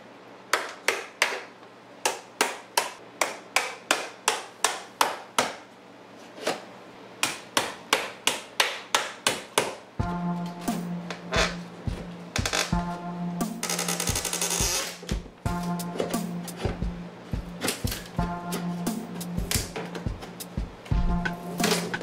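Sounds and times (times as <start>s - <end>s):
background music: 10.0s - 22.0s.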